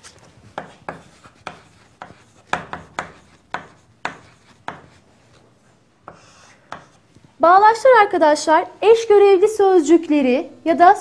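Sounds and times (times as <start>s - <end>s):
chalk tapping and scraping on chalkboard: 0.0s - 7.3s.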